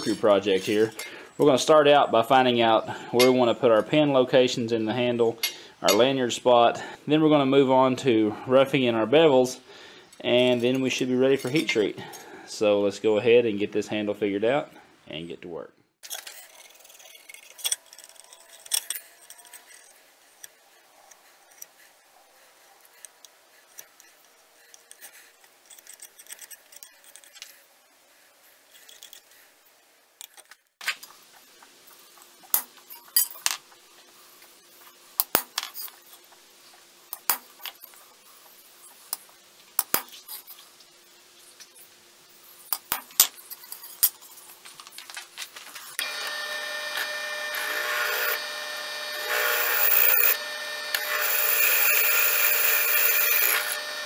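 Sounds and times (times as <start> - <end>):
metallic clicks and clinks: 16.0 - 21.8, 23.0 - 27.6.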